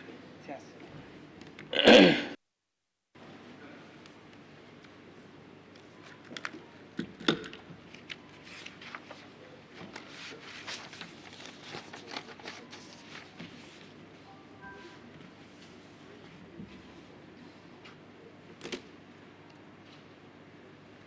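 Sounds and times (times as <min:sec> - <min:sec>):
rustling of people moving: 0:07.7 - 0:18.1.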